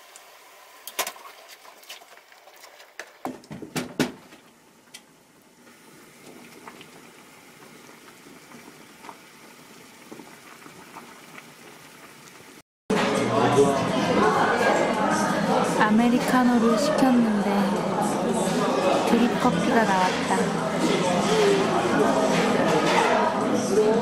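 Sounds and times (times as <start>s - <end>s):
soup boiling and bubbling: 0.0s - 12.6s.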